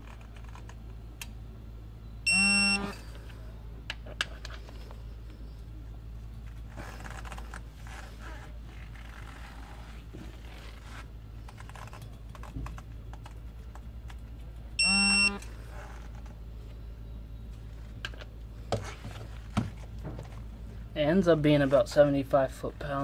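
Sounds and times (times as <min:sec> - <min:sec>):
short electronic beep: 0:02.2 - 0:03.0, 0:14.8 - 0:15.4.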